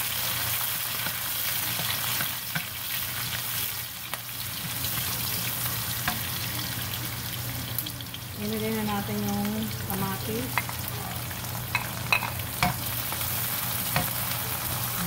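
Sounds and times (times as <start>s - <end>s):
onion sizzling in hot oil: 0.0s - 15.0s.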